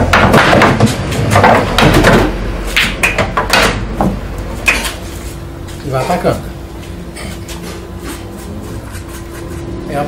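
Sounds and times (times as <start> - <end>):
pool balls clacking: 0.0 - 5.0.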